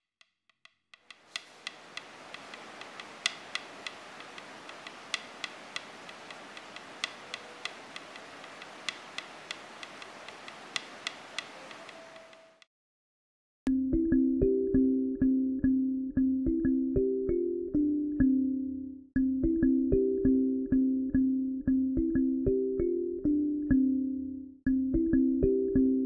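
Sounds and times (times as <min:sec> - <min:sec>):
sharp ticking clicks: 0:01.0 - 0:12.4
steady hiss: 0:01.1 - 0:12.6.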